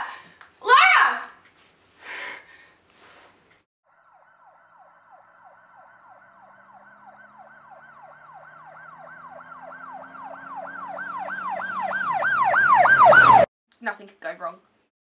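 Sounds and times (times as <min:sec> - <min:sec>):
emergency siren yelping: 0:03.8 - 0:13.5.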